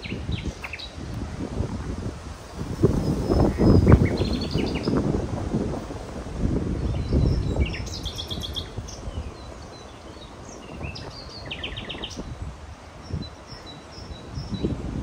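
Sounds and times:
small birds chirping: 0.0s - 1.5s, 2.7s - 5.3s, 6.7s - 15.0s.

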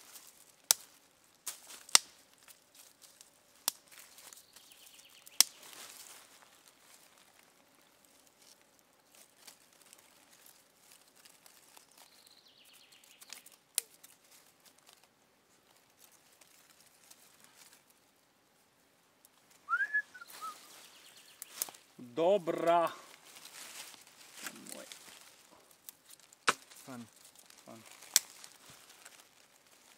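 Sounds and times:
twigs rustling and snapping: 0.0s - 18.1s, 20.2s - 29.9s
sharp crack: 0.7s - 2.2s, 5.3s - 5.7s, 25.8s - 27.0s, 27.7s - 28.6s
rising and falling whistle: 19.7s - 20.6s.

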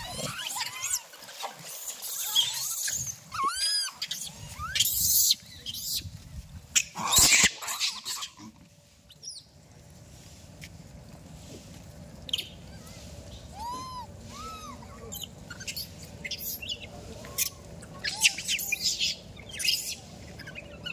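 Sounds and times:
baby monkey squeaking: 13.6s - 16.8s.

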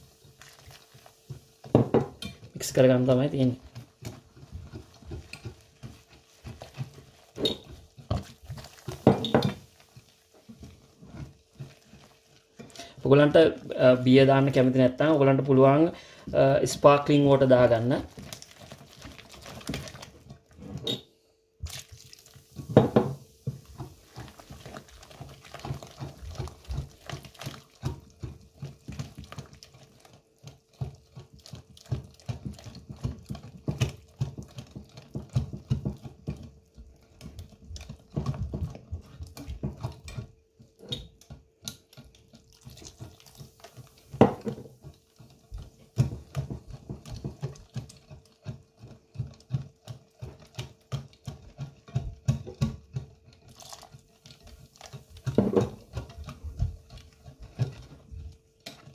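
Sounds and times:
whisk beating batter: 0.0s - 21.0s, 21.6s - 58.9s
whisk knocking on glass dish: 1.6s - 9.7s, 22.6s - 29.6s, 30.4s - 53.2s, 55.1s - 58.9s.

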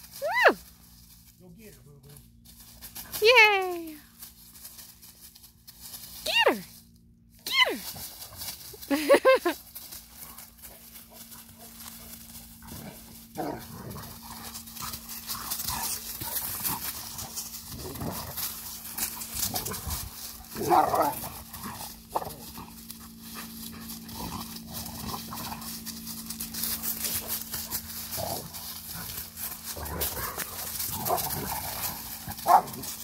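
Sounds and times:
dry leaves crackling: 0.0s - 33.0s
dogs play growling: 9.8s - 33.0s.

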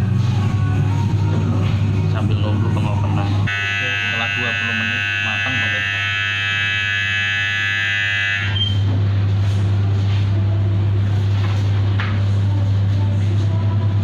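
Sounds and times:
low electrical hum: 0.0s - 14.0s
oven timer buzzer: 3.5s - 8.9s.

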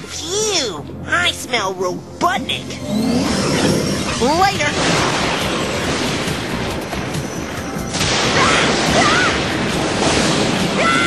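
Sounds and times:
background music: 0.0s - 11.0s
cartoon rushing and rumbling: 2.4s - 11.0s.

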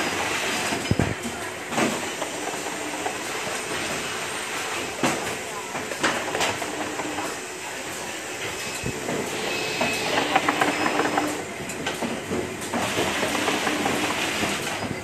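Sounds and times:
conveyor rattle: 0.0s - 15.0s
machine mechanical hiss: 6.6s - 15.0s.

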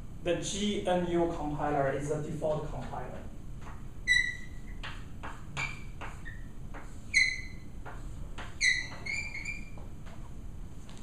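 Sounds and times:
chalk writing on blackboard: 3.6s - 9.9s
chalk squeaks: 4.0s - 9.9s.

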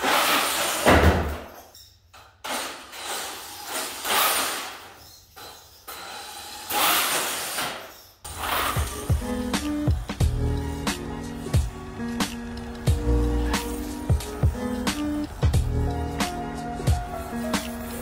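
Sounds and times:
rc truck motor whirring: 2.5s - 9.1s.

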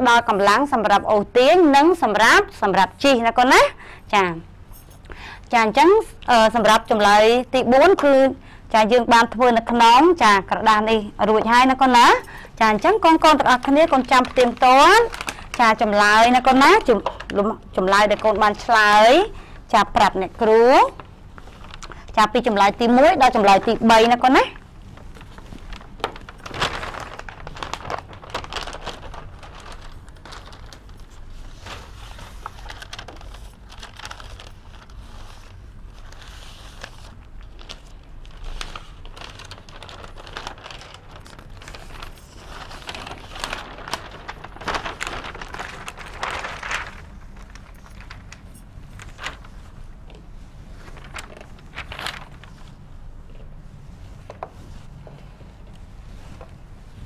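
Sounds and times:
paper rustling and crinkling: 11.4s - 57.0s.

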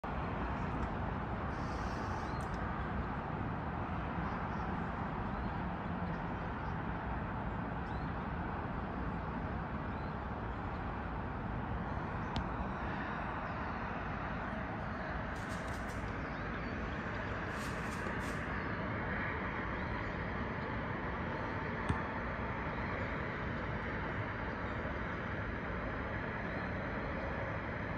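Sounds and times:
distant traffic hum: 0.0s - 27.9s
faint bird chirps: 1.5s - 2.6s.

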